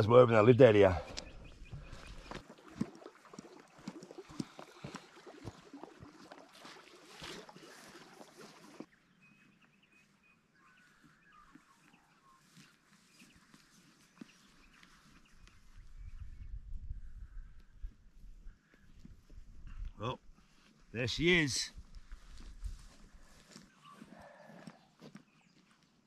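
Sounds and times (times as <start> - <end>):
footsteps through grass: 5.1 - 16.0, 17.6 - 26.0.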